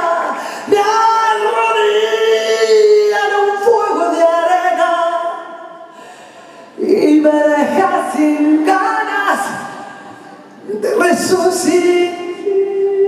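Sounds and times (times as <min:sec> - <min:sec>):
woman singing into a microphone: 0:00.0 - 0:05.8, 0:10.6 - 0:13.0.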